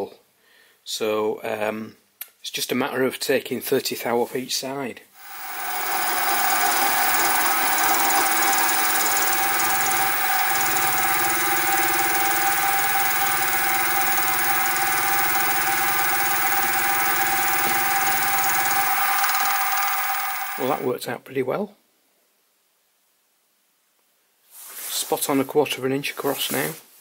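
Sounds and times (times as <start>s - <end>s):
milling machine motor whine: 5.2s - 20.9s.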